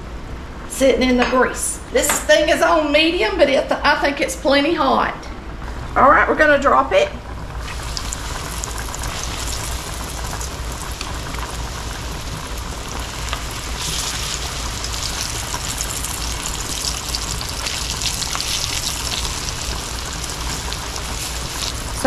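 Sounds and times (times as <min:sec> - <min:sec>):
chicken sizzling in frying fat: 0:07.3 - 0:22.0.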